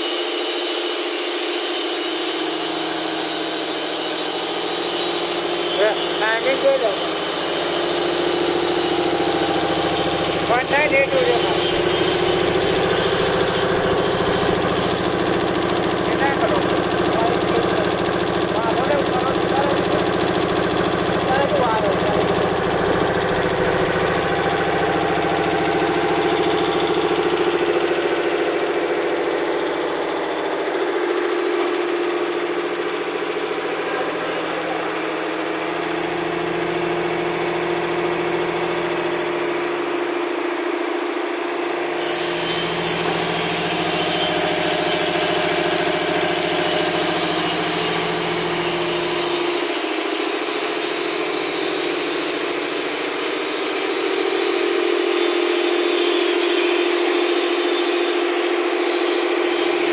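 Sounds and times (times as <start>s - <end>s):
air compressor humming: 0.0s - 59.9s.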